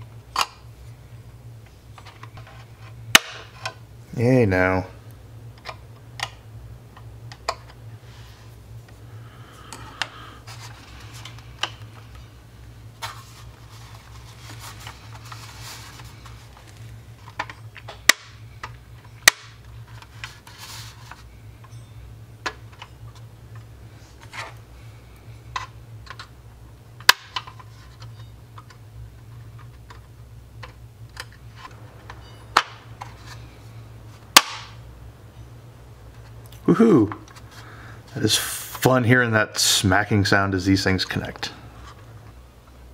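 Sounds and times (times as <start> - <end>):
plastic parts clicking into place: 25.5 - 26.3.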